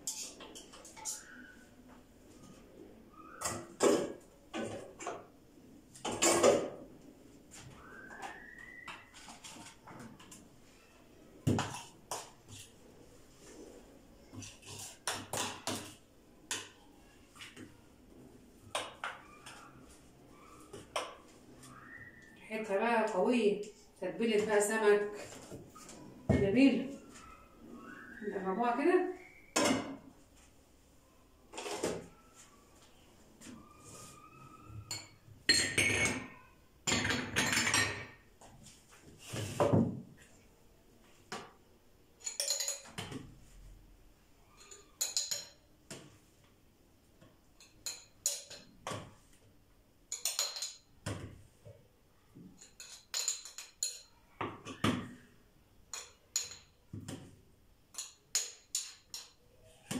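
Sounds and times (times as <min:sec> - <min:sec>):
spoon clinking against glass: 0:42.2 - 0:43.0, 0:44.6 - 0:45.6, 0:50.1 - 0:50.8, 0:52.6 - 0:54.1.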